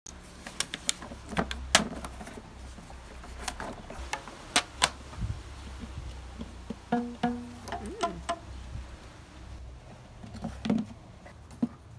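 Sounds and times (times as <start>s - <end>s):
pinecones clicking in cardboard box: 0.4s - 2.4s.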